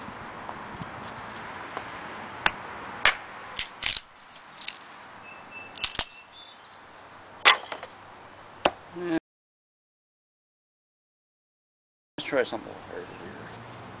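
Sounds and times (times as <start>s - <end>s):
hatchet splitting wood: 2.4s - 4.1s, 7.4s - 7.9s.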